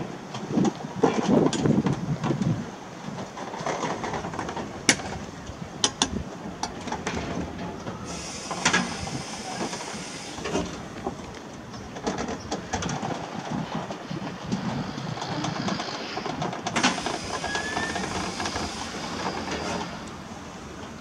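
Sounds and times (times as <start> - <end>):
clanks from wheels and wagons: 0.0 - 21.0
steam locomotive moving slowly: 0.0 - 21.0
steam hissing: 7.9 - 11.3, 14.1 - 21.0.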